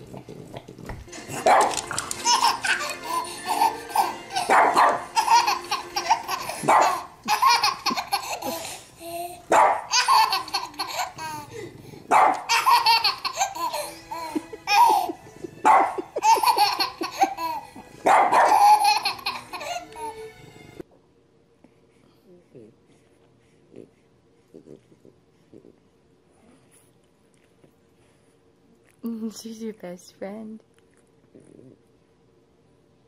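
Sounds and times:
baby laughing: 0:01.2 - 0:11.7, 0:12.4 - 0:20.3
dog barking: 0:01.4 - 0:01.8, 0:04.5 - 0:05.0, 0:06.6 - 0:07.0, 0:09.5 - 0:09.9, 0:12.1 - 0:12.5, 0:15.6 - 0:16.0, 0:18.0 - 0:18.6.

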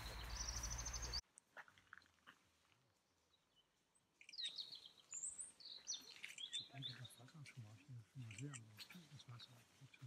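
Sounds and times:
songbirds chirping and whistling: 0:00.0 - 0:01.2, 0:03.3 - 0:10.0.

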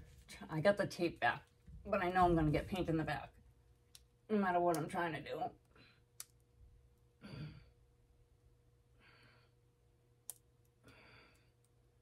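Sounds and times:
woman breathing hard: 0:10.8 - 0:11.6.

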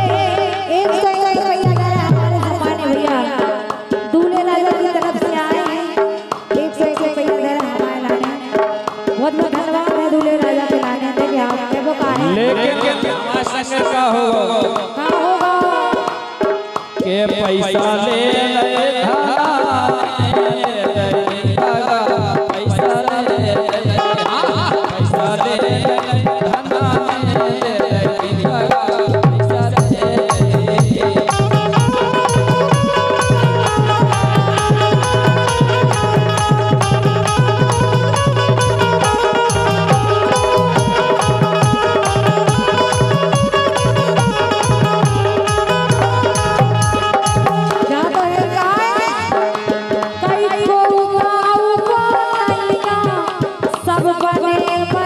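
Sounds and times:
drum beat: 0:00.0 - 0:03.4, 0:20.2 - 0:48.7
person singing: 0:00.0 - 0:16.3, 0:17.0 - 0:55.0
harmonium: 0:00.0 - 0:55.0.

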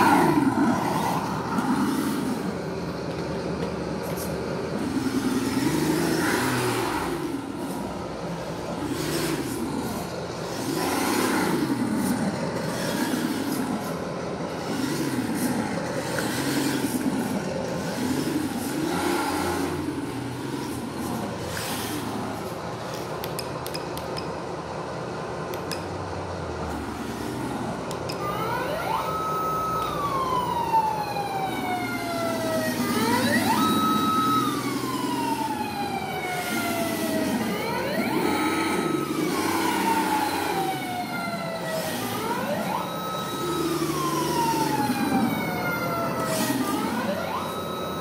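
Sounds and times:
simulated engine hum: 0:00.0 - 0:48.0
electronic siren: 0:04.8 - 0:22.5, 0:27.8 - 0:48.0.

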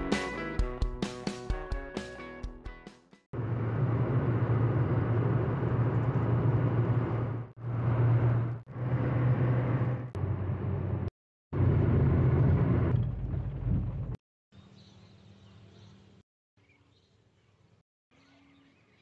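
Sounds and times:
motor humming and rushing: 0:03.4 - 0:13.3.

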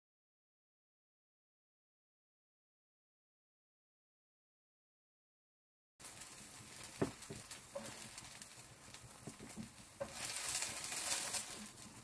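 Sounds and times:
rustle: 0:06.0 - 0:12.0
wooden spatula knocking and scraping: 0:06.8 - 0:12.0.

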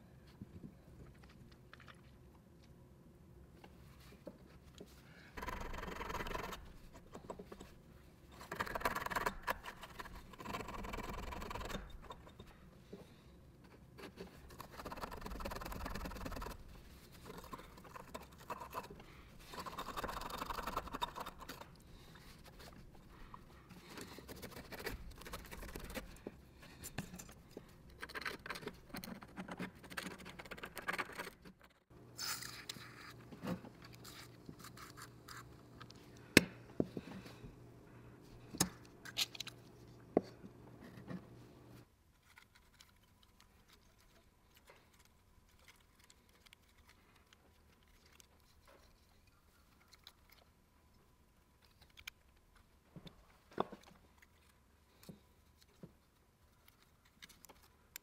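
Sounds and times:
scraping and rubbing: 0:13.6 - 0:35.6.

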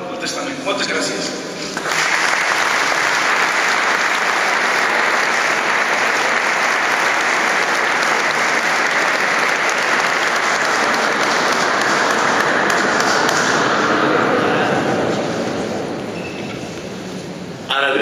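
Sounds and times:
audience applauding in a hall: 0:01.6 - 0:14.4.

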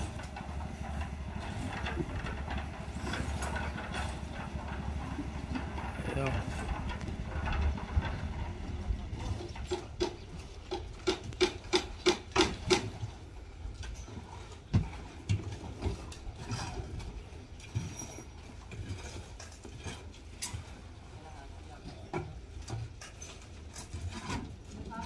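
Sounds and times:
building work knocks and scrapes: 0:00.0 - 0:13.2, 0:22.0 - 0:24.8.

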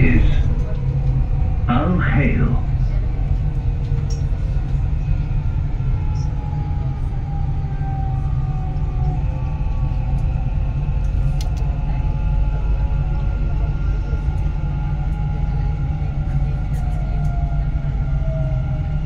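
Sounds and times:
train running with low rumble: 0:00.0 - 0:19.0.

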